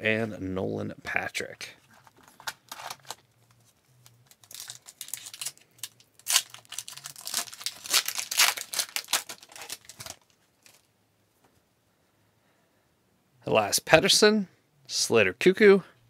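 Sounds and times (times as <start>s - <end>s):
wrapper tearing and crinkling: 2.1s - 3.2s, 4.0s - 10.9s.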